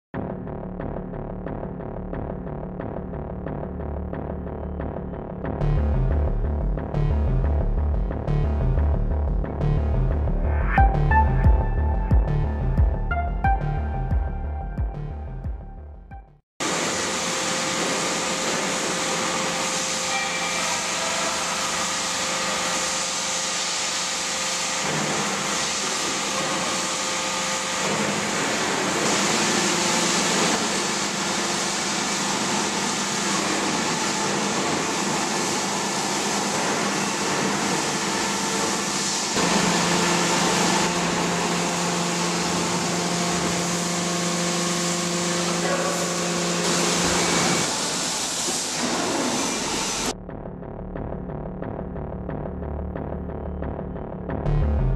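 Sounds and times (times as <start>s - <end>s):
low drone: 5.6s - 16.3s, 17.4s - 23.7s
steady tones: 7.0s - 16.4s
machine hiss and hum: 16.6s - 50.1s.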